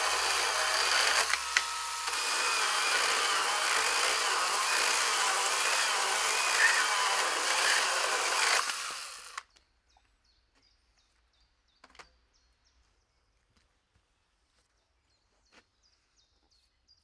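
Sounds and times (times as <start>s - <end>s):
chainsaw cutting wood: 0.0s - 9.5s.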